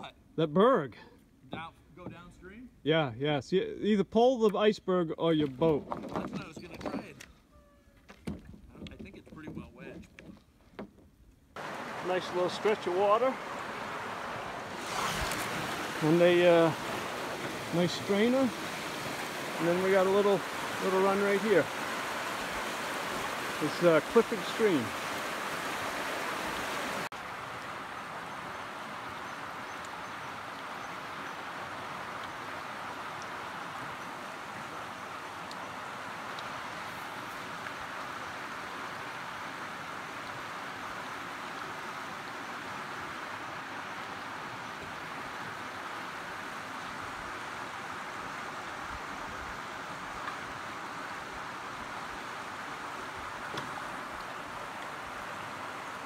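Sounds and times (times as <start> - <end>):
stream rapids rushing: 11.6 - 56.0.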